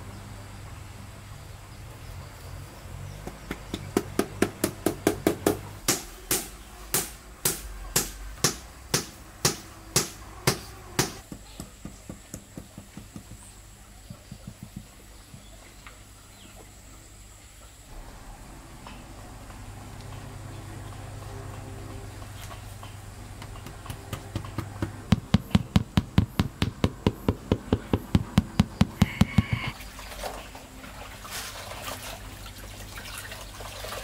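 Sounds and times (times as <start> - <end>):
knocks on ceramic tile: 23.4 - 29.7.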